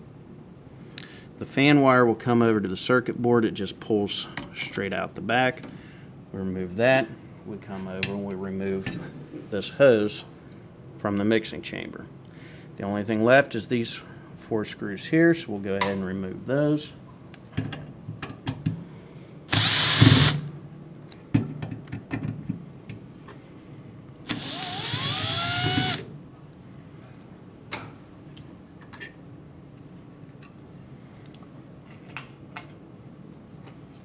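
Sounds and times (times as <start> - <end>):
cordless driver motor whine: 19.5 - 20.4, 24.3 - 26.1.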